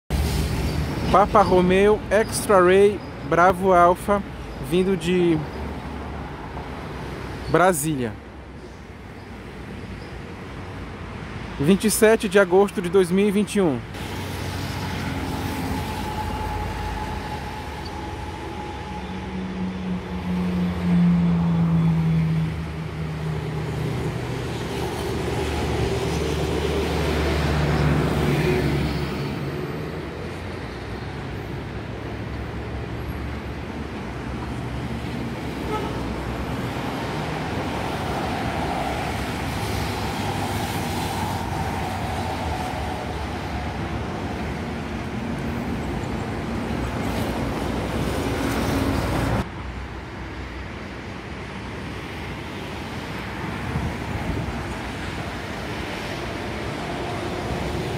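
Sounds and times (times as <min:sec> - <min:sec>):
vehicles passing: 0:00.1 - 0:57.9
heavy engine low drone: 0:14.0 - 0:24.4.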